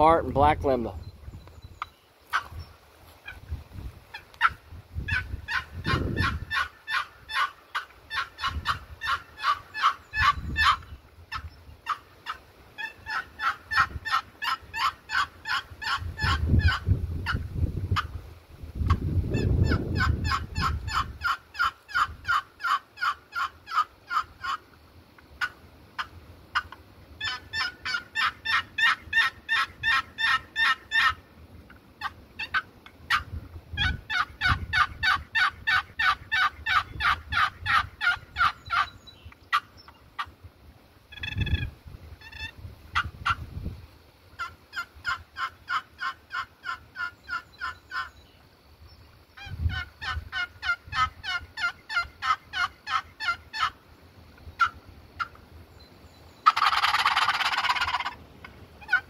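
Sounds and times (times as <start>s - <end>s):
box turkey call scraping: 4.1s - 17.4s, 25.4s - 31.2s, 41.1s - 43.4s, 56.4s - 59.0s.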